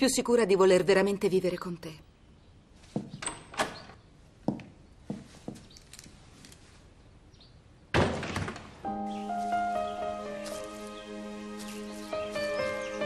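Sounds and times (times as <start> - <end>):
footsteps: 4.4 - 6.8, 9.3 - 12.8
soft music with held notes: 8.8 - 13.0.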